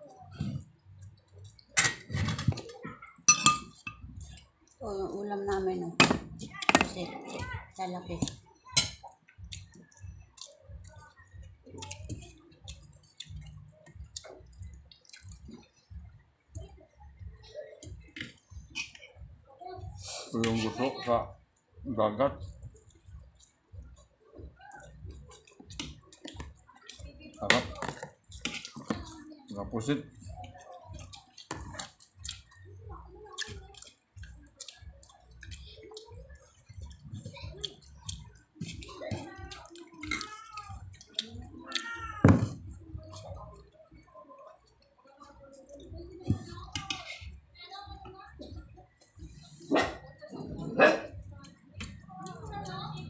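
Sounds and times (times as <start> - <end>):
wet chewing sounds: 8.2 - 16.1, 24.7 - 29.3, 30.4 - 43.7
fingers mixing food on plate: 22.7 - 29.3, 33.2 - 44.9, 45.5 - 47.8.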